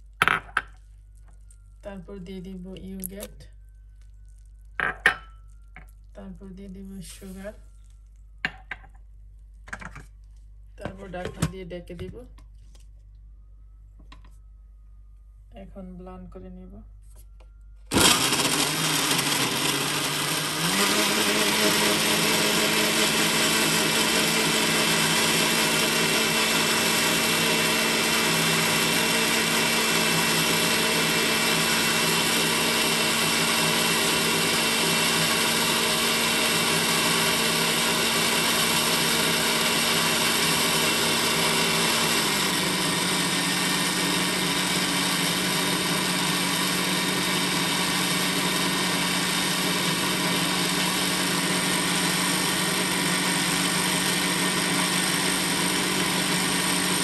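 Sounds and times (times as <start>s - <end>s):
blender running: 17.9s - 57.0s.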